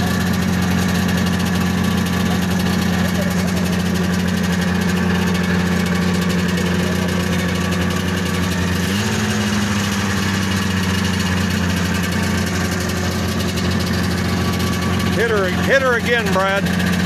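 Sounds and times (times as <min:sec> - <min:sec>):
snowmobile engine idling: 0:00.0 - 0:17.0.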